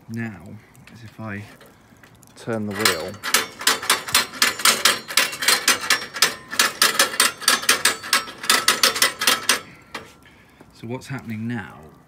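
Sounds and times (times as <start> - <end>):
grill hand wheel clicking: 2.4 - 10.2.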